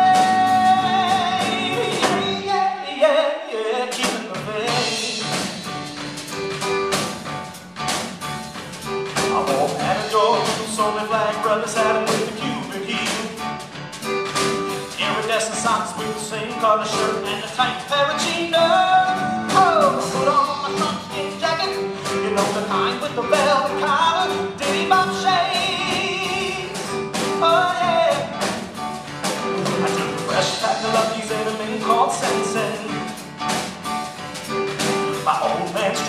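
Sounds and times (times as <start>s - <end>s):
drum kit beat: 0.0s - 2.9s, 3.9s - 36.0s
person singing: 0.0s - 5.8s, 9.2s - 13.6s, 14.9s - 28.6s, 29.6s - 33.2s, 35.2s - 36.0s
keyboard: 0.0s - 36.0s.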